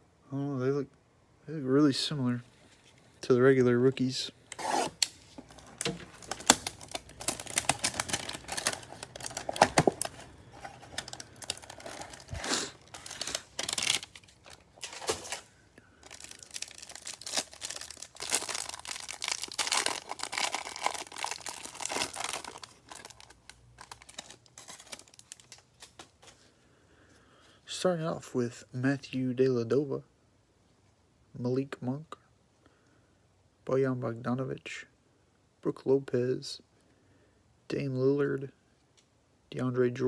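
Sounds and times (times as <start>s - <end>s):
plastic shrink wrap tearing: 4.5s - 26.3s.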